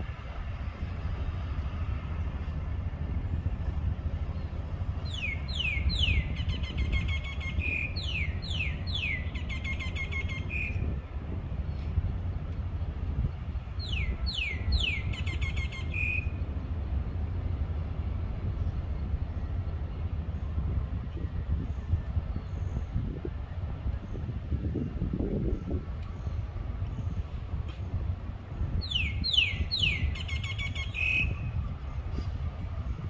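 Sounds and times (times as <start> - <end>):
steady low rumble: 0.0 - 33.0
songbird singing: 4.3 - 10.9, 13.6 - 16.7, 28.7 - 32.4.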